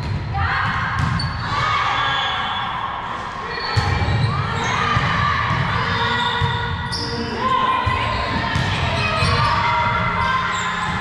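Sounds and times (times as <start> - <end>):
shoe squeaks: 1.2 - 1.5, 5.9 - 7.4, 8.2 - 11.0.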